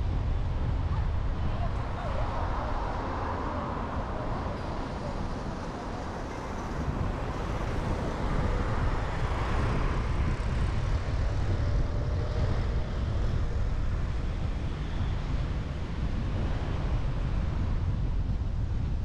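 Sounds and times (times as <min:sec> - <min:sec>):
cars and motorbikes passing: 0:00.6 - 0:18.1.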